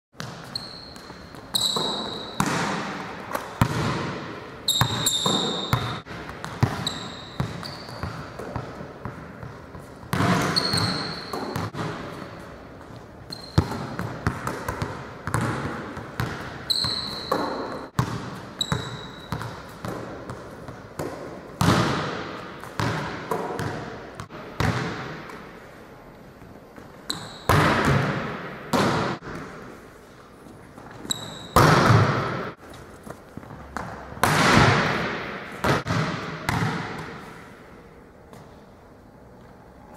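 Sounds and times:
sneaker squeaks: 0.2s - 3.0s, 4.6s - 8.8s, 9.4s - 11.8s, 12.9s - 14.0s, 16.2s - 19.9s, 26.9s - 27.6s, 30.7s - 34.1s
volleyball bouncing on gym floor: 0.2s - 25.6s, 26.8s - 29.7s, 31.2s - 32.6s, 33.4s - 37.4s.

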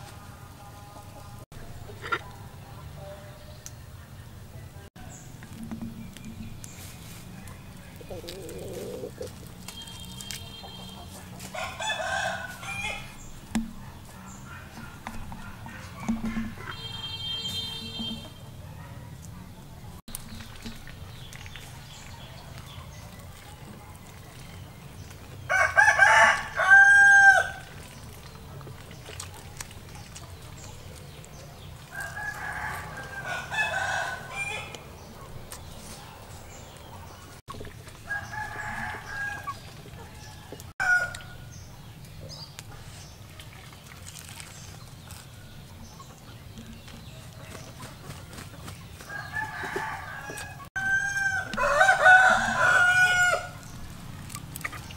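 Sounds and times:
roosters crowing: 8.1s - 13.3s, 25.4s - 27.7s, 31.9s - 35.1s, 38.0s - 41.6s, 49.0s - 53.7s.

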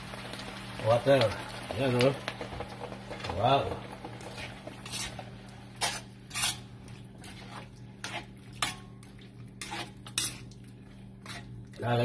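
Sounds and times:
spatula scraping a wok: 4.0s - 11.6s.

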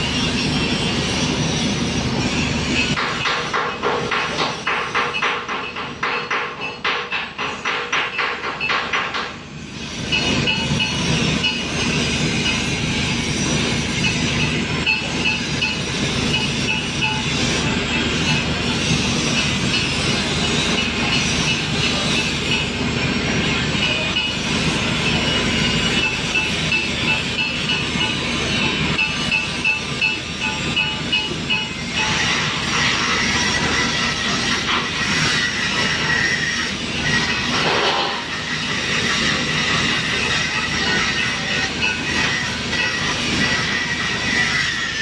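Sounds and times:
angle grinder grinding steel: 9.6s - 45.0s.

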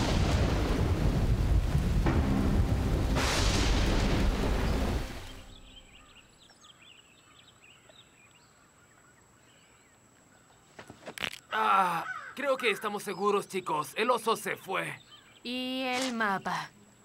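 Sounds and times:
heavy rain pouring: 0.0s - 5.6s
thunder rumble: 0.0s - 6.0s
birds chirping: 3.8s - 17.0s.

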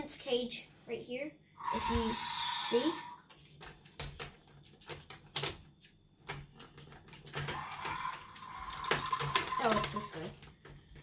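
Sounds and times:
plastic toy clicks and knocks: 3.6s - 11.0s.

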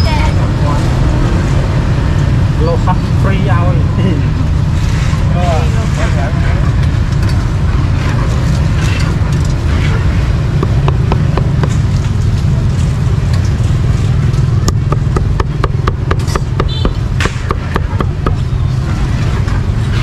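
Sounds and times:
low rumble of street noise: 0.0s - 20.0s
cleaver chopping on block: 10.6s - 11.8s, 14.6s - 18.4s.

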